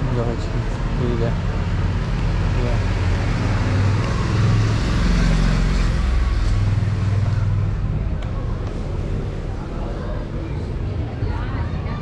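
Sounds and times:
motorcycle passing: 1.3s - 10.6s.

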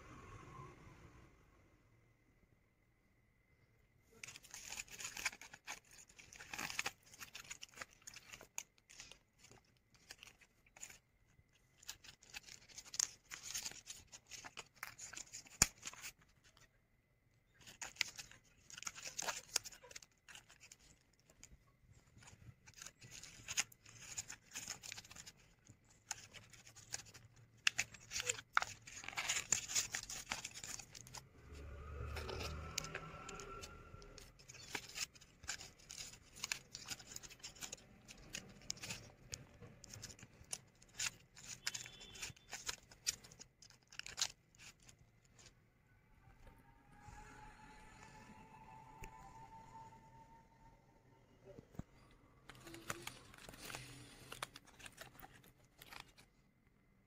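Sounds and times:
paper rustling and crinkling: 4.1s - 16.8s, 17.5s - 45.6s, 51.7s - 56.5s.

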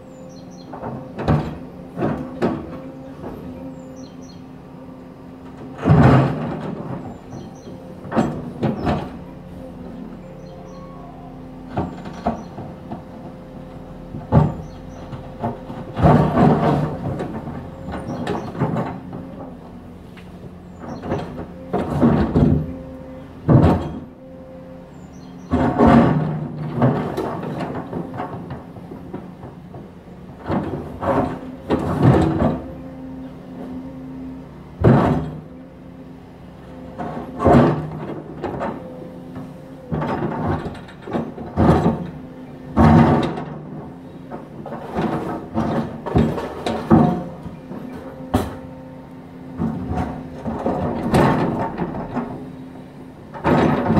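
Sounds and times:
excavator engine running: 0.0s - 53.9s.

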